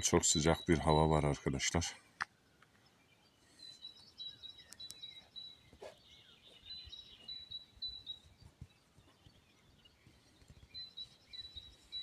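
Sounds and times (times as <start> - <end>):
bird chirping: 0.0 - 12.0
faint clicks: 4.6 - 5.1.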